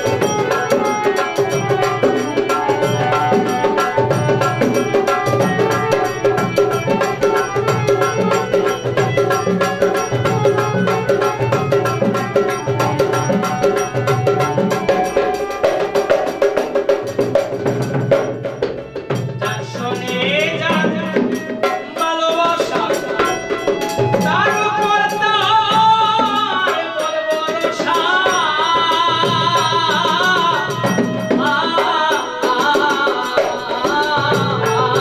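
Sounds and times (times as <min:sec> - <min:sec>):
barrel drum beating: 0:00.0 - 0:26.4.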